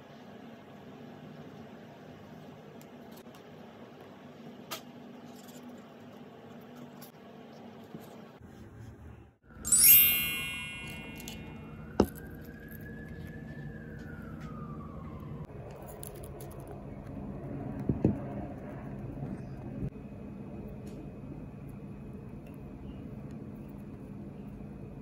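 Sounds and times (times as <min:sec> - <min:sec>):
sparkle chime: 0:09.6 - 0:12.2.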